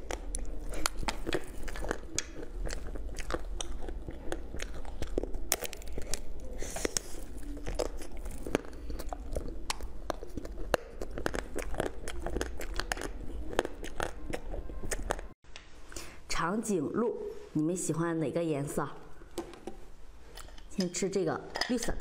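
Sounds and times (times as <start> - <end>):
crunchy sweet chewing: 0.0 - 15.4.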